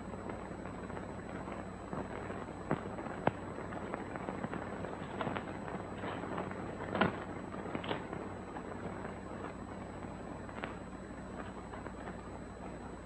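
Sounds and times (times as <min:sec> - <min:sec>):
old film soundtrack hiss and hum: 0:00.0 - 0:13.0
sharp cracks and pops: 0:00.0 - 0:13.0.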